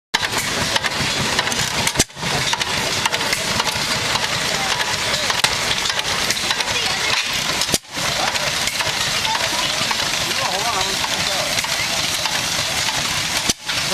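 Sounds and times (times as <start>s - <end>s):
stationary engine exhaust pops: 0.2s - 13.9s.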